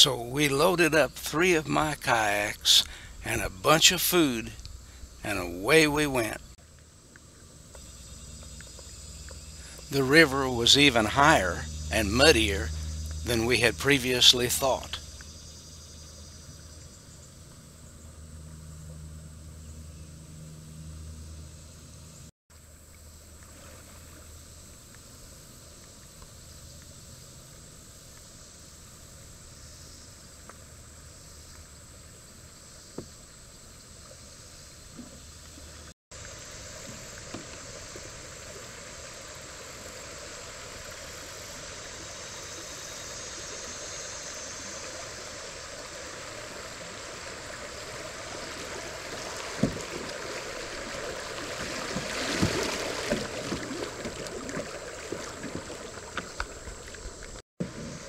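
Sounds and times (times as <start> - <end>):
stream water rushing: 36.2 - 58.0.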